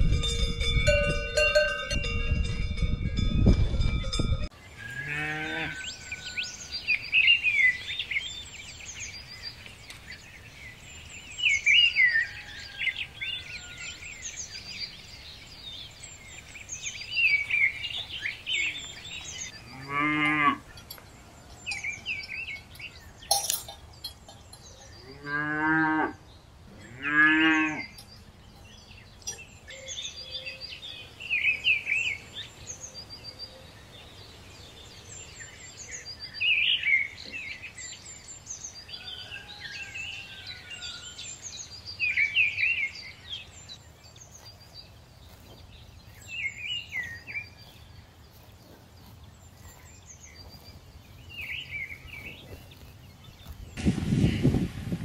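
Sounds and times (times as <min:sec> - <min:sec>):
birds chirping: 0:00.0 - 0:55.0
cows mooing: 0:04.9 - 0:05.9, 0:19.6 - 0:20.7, 0:25.0 - 0:26.2, 0:26.8 - 0:28.0.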